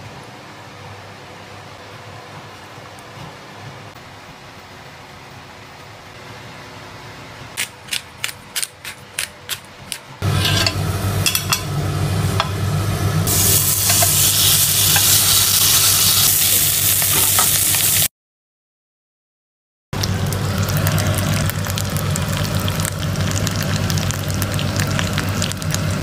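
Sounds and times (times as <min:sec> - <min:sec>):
fish sizzling in grill pan: 0:10.3 - 0:18.1.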